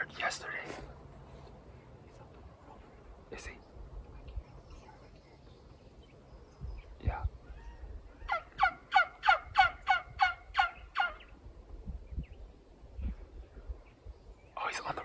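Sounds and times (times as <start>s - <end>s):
turkey yelps: 7.5s - 11.3s.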